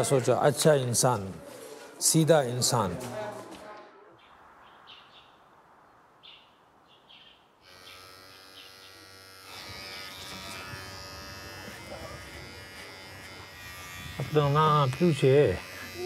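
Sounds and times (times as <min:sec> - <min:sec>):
electric hair clippers buzzing: 0:07.6 - 0:16.0.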